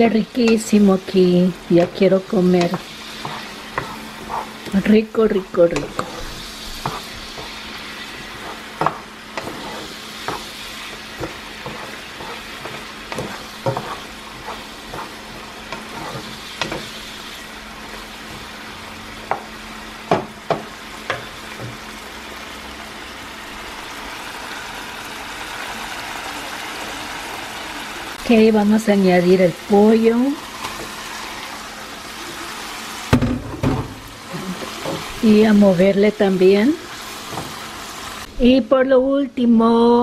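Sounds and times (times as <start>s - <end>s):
food sizzling in frying pan: 0.0s - 38.6s
wooden spoon scraping pan: 1.7s - 18.6s.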